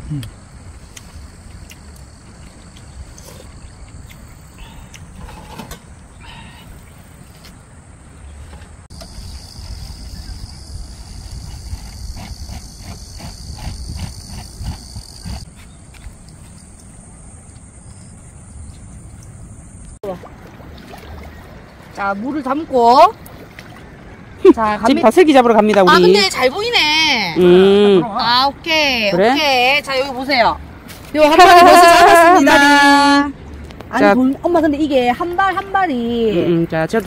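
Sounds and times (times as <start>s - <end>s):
insects trilling: 0.0s - 8.2s, 8.9s - 20.0s.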